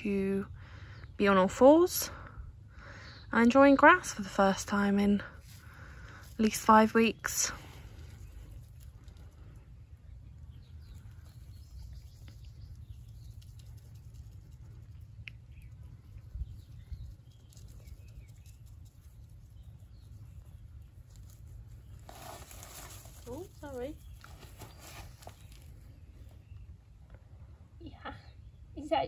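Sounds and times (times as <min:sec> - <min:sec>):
faint bird chirps: 0:07.1 - 0:29.0
rustling in grass: 0:17.2 - 0:26.5.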